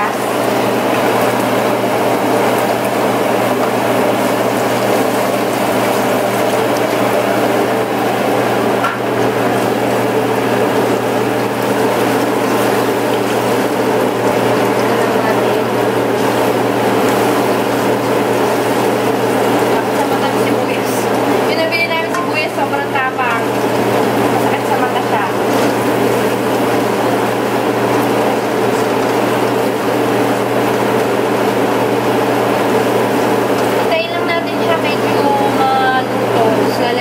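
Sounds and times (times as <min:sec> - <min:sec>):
onion sizzling in hot oil: 0:00.0 - 0:37.0.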